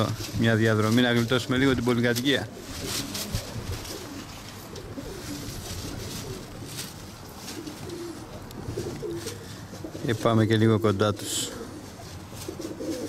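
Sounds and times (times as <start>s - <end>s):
pigeons cooing: 0.0s - 13.0s
wind on microphone: 3.2s - 4.0s.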